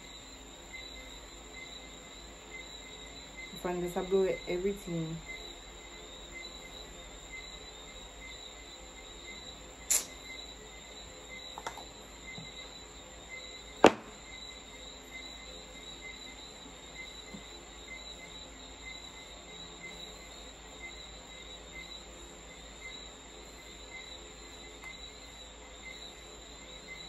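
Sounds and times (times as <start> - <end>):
insects chirping: 0.0 - 27.0
sharp tap: 13.8 - 14.1.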